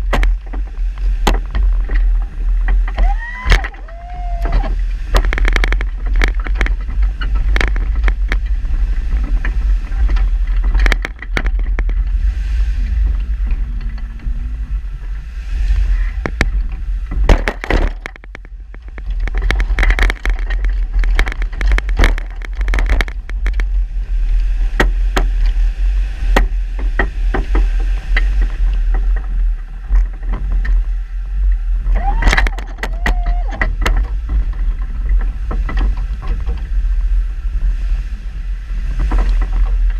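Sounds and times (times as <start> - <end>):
low engine rumble: 0.0 - 39.9.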